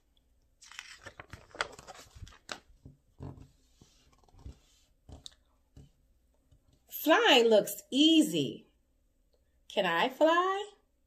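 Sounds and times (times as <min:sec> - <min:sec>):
book pages rustling: 0:00.6 - 0:06.0.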